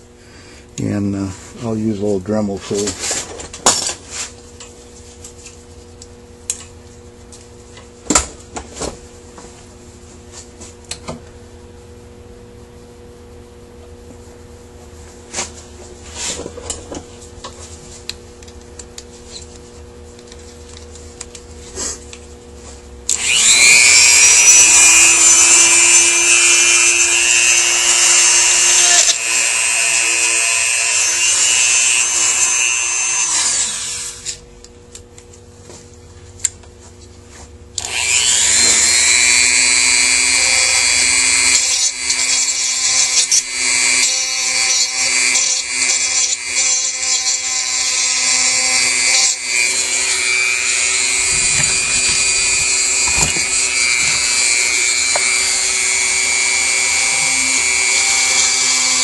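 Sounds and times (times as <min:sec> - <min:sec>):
rotary tool grinding metal: 0:23.1 - 0:34.4, 0:37.8 - 0:59.0.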